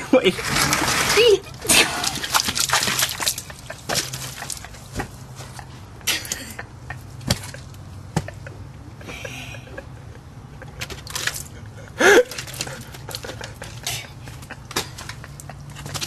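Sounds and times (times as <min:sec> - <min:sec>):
short splashy noises: 0:00.3 - 0:04.6.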